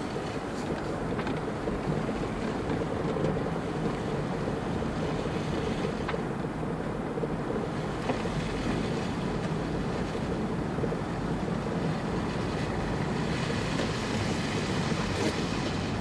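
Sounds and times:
car driving on snowy road: 0.0s - 16.0s.

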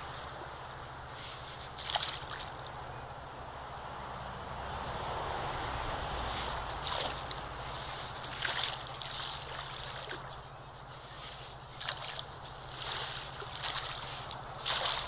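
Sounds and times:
dog digging in sand: 10.9s - 15.0s.

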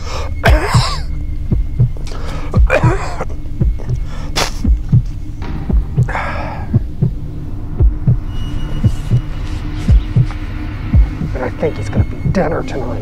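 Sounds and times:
low steady drone: 0.0s - 13.0s
man coughing: 0.4s - 1.1s, 2.6s - 3.3s
heartbeat double thump: 0.4s - 9.3s, 9.9s - 11.4s
sharp hiss: 4.0s - 4.8s.

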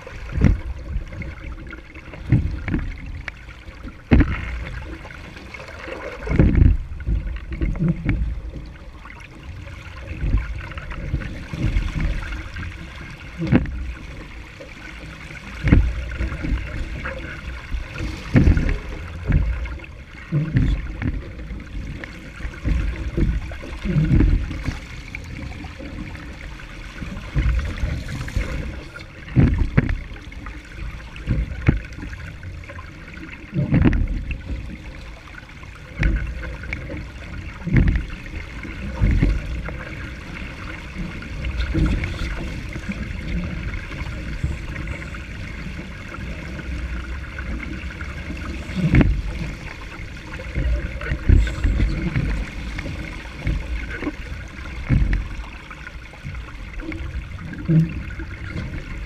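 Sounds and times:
water rushing against hull: 0.0s - 59.0s
waves slapping: 0.0s - 59.0s.

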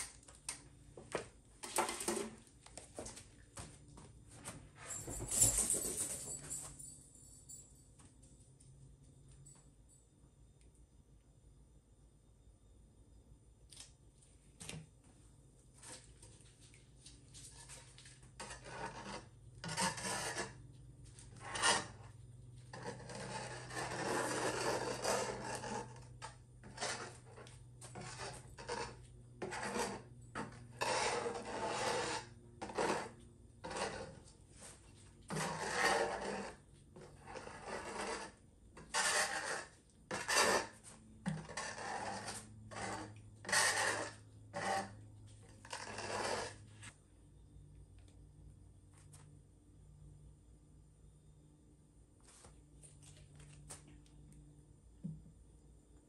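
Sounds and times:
metal scraper scraping tabletop: 17.5s - 46.9s.

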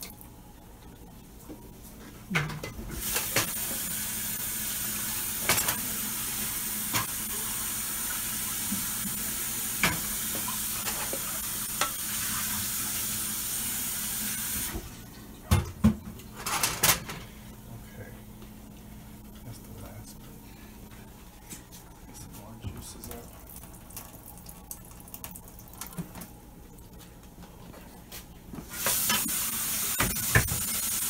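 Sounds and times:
kitchen tap running: 3.0s - 14.9s, 23.0s - 26.2s, 28.7s - 31.0s.

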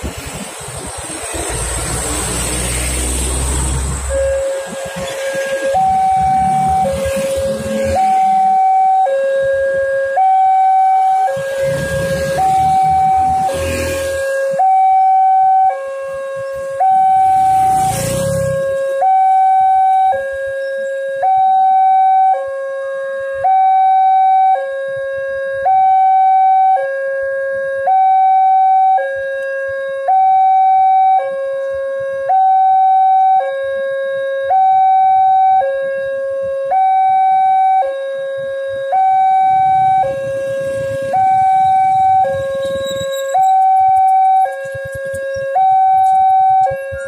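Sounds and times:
passing vehicle road noise: 0.0s - 9.5s, 10.2s - 15.1s, 16.0s - 20.4s, 39.2s - 47.0s
level crossing two-tone alarm: 4.0s - 22.6s, 32.3s - 33.7s, 34.5s - 36.1s, 36.7s - 38.0s, 38.9s - 47.0s.

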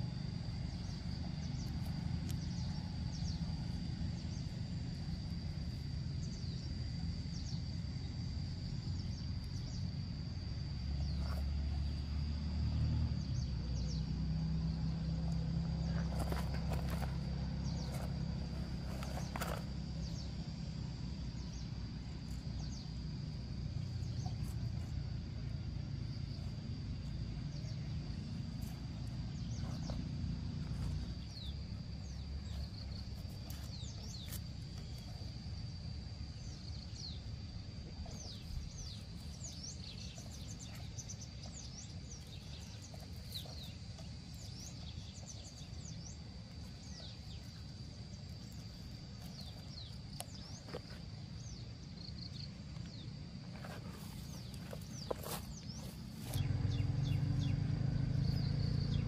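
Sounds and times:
birds chirping: 38.0s - 59.0s.

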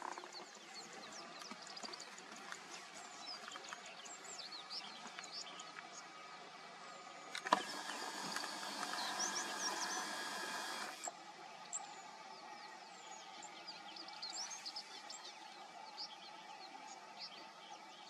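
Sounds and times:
small birds chirping: 0.0s - 18.0s
click: 7.3s - 9.8s
steady hiss: 7.4s - 11.2s.

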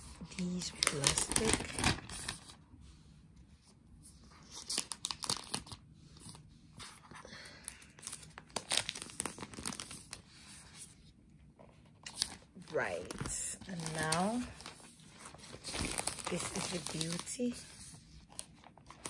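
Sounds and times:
plastic film peeling and crinkling: 0.2s - 2.6s, 4.4s - 6.4s, 7.9s - 10.3s, 11.9s - 19.0s.

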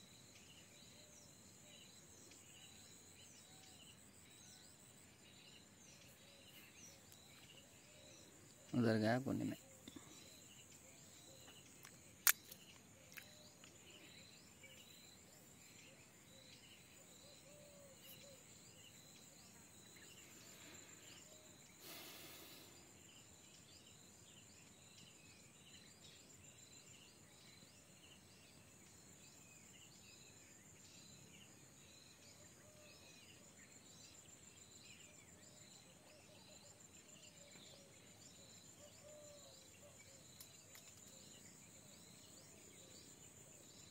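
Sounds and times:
crickets trilling: 0.0s - 30.5s
small bird chirps: 0.0s - 34.4s
sharp click: 11.8s - 13.3s.

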